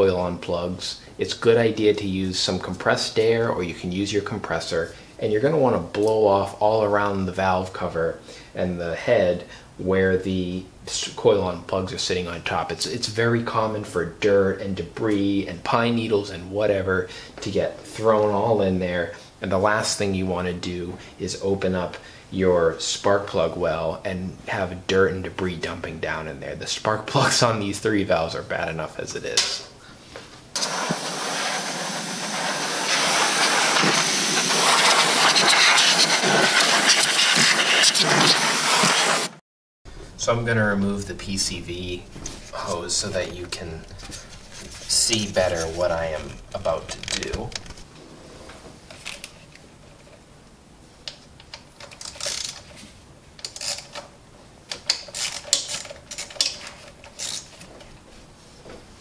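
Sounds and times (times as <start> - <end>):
compressed air hissing from spray can: 30.6 - 39.3.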